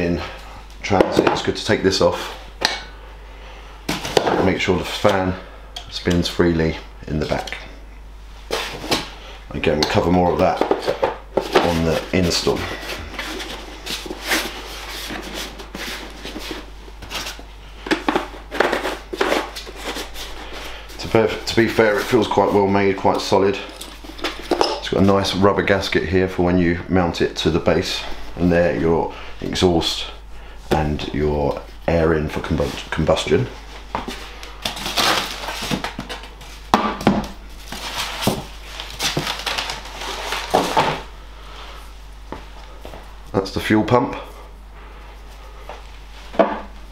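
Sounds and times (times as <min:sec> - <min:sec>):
foam and plastic wrap crinkling: 0:09.9 - 0:17.4, 0:34.2 - 0:36.7, 0:37.5 - 0:41.1.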